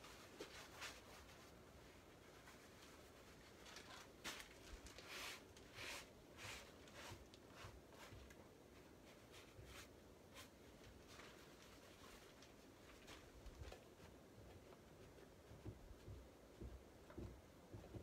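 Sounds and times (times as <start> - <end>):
paintbrush strokes on canvas: 4.1 - 16.8.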